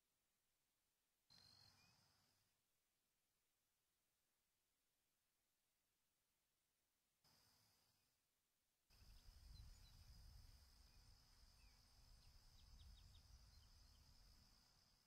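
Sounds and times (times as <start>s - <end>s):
faint bird chirps: 1.3s - 2.5s, 8.9s - 15.0s
high insect trill: 8.9s - 15.0s.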